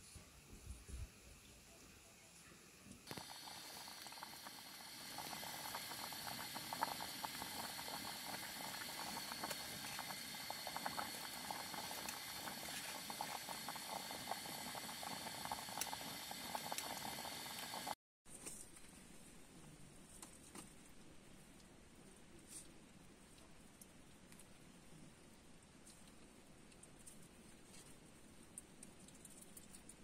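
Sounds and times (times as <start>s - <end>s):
water boiling in a pot: 0.0s - 18.0s.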